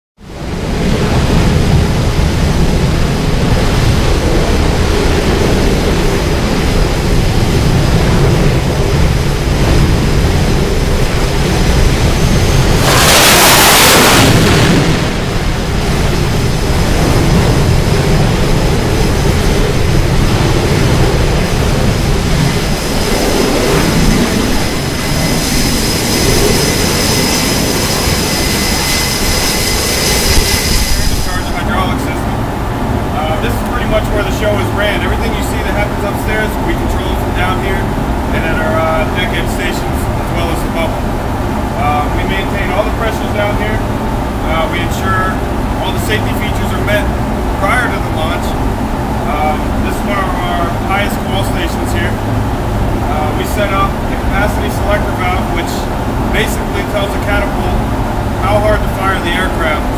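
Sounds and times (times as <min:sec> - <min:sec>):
high jet engine whine: 0:00.2 - 0:59.9
jet engines rumbling: 0:00.2 - 0:59.9
steam catapult launch blast: 0:12.6 - 0:15.7.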